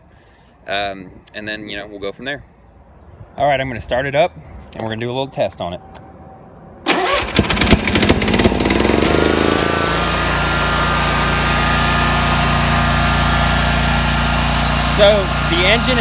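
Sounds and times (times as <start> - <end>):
electric starter cranking: 6.9 - 16.0
mower engine running: 6.9 - 16.0.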